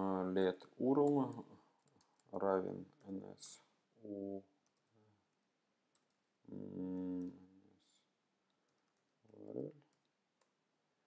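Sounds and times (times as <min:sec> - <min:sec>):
man making wordless sounds: 0:02.4 - 0:04.6, 0:06.5 - 0:07.9.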